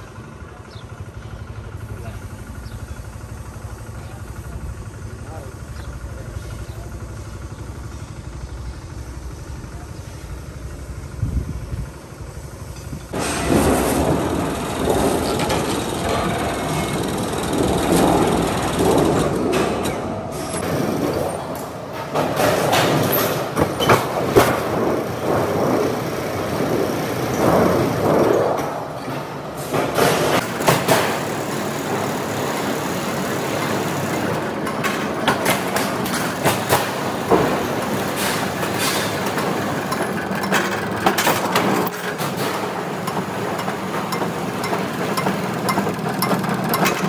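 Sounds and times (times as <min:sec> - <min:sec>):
leveling rollers running: 0:00.0 - 0:47.0
low machine hum: 0:00.0 - 0:47.0
metal sheet clanking and rattling: 0:13.1 - 0:32.6.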